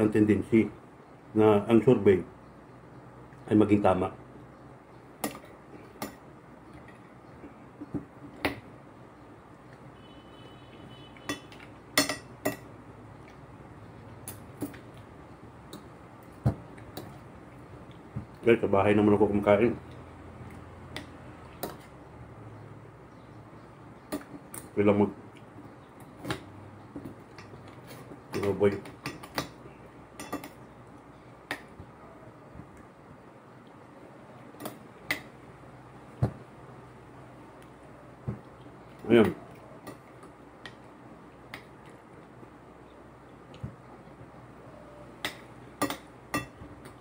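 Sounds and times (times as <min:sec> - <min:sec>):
faint low hum: 0:00.0 - 0:47.0
cutlery clinking on plate: 0:05.2 - 0:06.2, 0:11.2 - 0:12.7, 0:30.2 - 0:30.6, 0:45.2 - 0:47.0.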